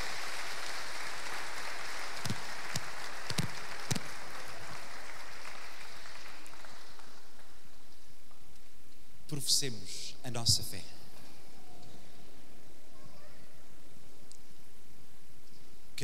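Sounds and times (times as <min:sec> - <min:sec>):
congregation applauding: 0:00.0 - 0:07.8.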